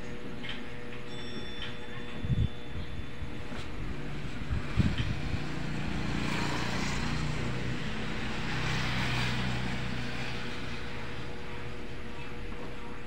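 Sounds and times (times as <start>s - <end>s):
motorcycle passing by: 3.9s - 11.7s.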